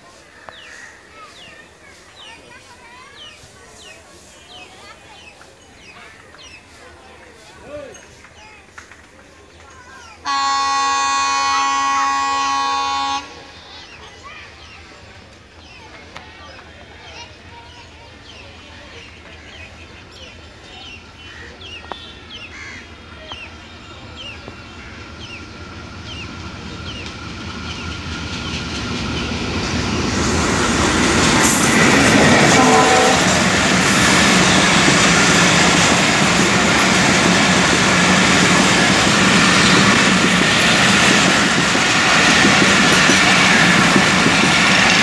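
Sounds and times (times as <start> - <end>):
passenger train passing: 0.0 - 45.0
train horn: 10.2 - 13.6, 31.4 - 35.0.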